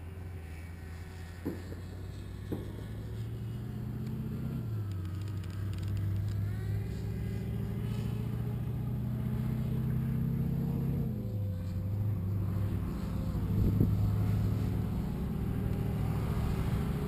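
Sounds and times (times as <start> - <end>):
engine running: 0.0 - 17.0.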